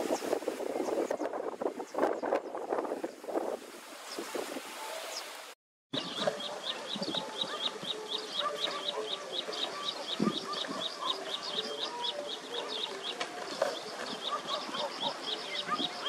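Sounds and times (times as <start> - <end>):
birds chirping: 4.0 - 16.0.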